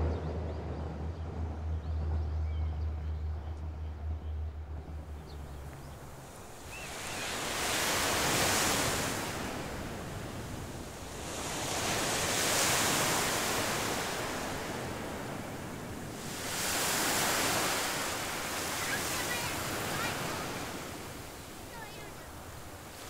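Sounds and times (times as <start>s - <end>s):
waves washing on gravel beach: 6.2s - 23.0s.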